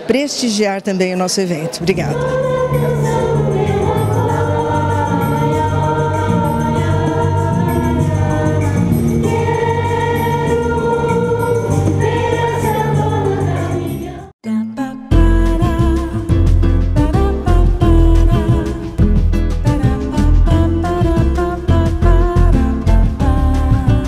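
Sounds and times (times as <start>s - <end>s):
choir singing held chords: 1.7s - 14.6s.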